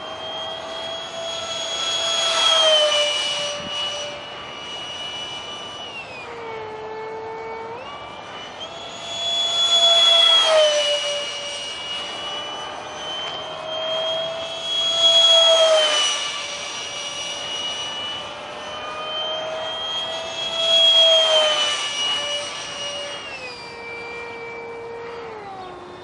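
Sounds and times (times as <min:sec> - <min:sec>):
model jet ducted fan whine: 0:00.0 - 0:26.0.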